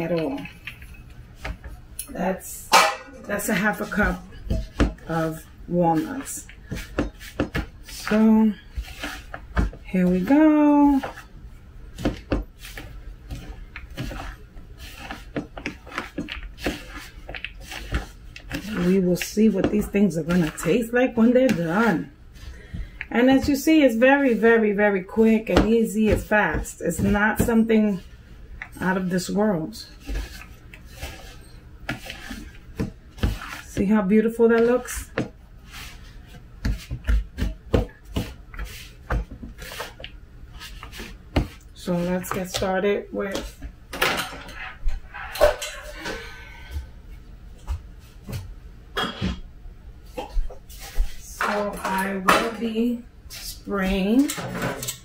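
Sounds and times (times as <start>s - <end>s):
utensil scraping crumbly topping: 3.2s - 11.3s, 11.9s - 43.6s.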